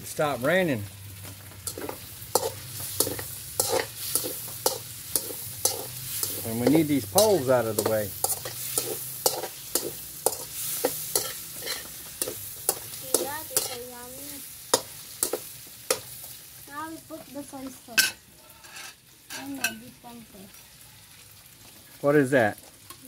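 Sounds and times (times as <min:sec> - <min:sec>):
meat sizzling: 0:00.0 - 0:23.0
metal spatula scraping a pan: 0:01.6 - 0:14.0, 0:18.0 - 0:19.8.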